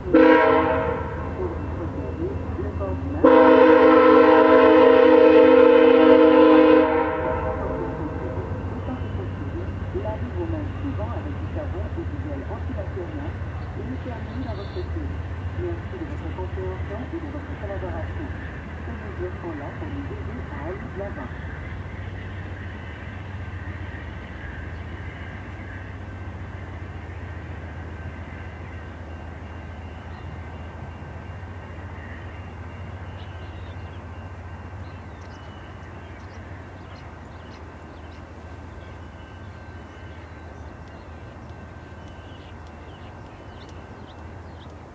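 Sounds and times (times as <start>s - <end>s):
diesel locomotive drone: 0.0s - 44.9s
train coaches rumbling on rails: 0.0s - 44.9s
faint high ticks: 40.8s - 44.8s.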